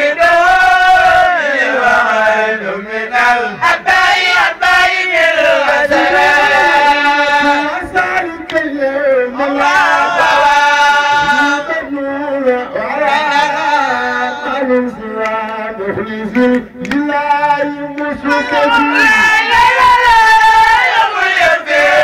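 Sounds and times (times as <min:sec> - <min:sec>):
man chanting over loudspeakers: 0:00.0 - 0:03.8, 0:05.3 - 0:20.8.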